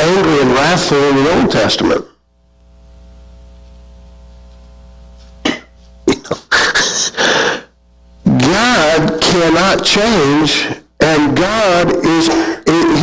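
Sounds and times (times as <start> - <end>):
faint steady hum: 0.0 - 13.0
man coughing: 5.4 - 7.7, 12.0 - 12.7.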